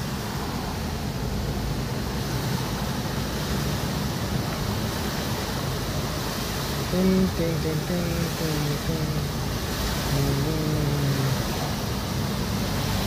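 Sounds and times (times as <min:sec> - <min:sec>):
car engine rumble: 0:00.0 - 0:13.0
tyres churning water: 0:00.0 - 0:13.0.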